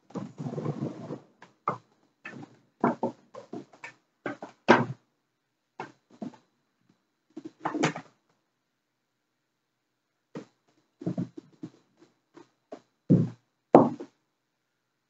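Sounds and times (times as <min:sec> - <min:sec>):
knocks and thuds on wooden deck: 0:13.1 - 0:14.1.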